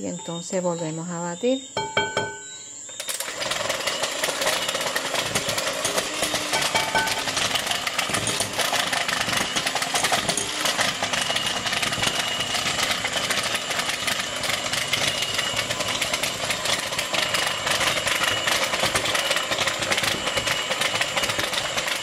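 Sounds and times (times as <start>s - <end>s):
electric hand mixer whirring: 3.0s - 22.0s.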